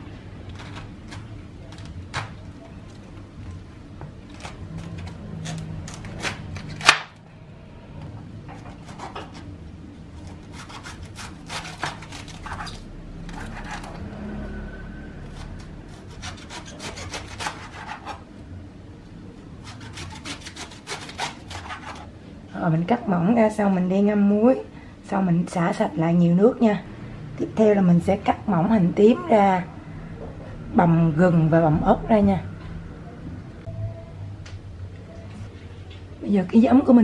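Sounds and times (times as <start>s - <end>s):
knife cutting cabbage: 4.3s - 7.1s, 10.2s - 14.0s, 15.2s - 18.2s, 19.6s - 22.1s.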